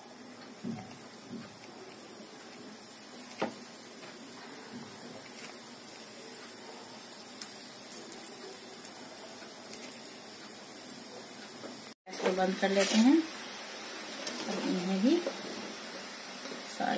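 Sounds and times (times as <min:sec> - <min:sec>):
fritters sizzling in oil: 0:00.0 - 0:16.9.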